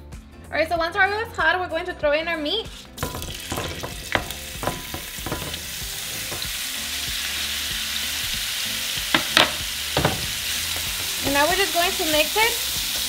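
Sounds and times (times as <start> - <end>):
meat sizzling in oil: 2.6 - 13.0
spatula knocks and scrapes: 2.7 - 6.5, 9.2 - 10.4.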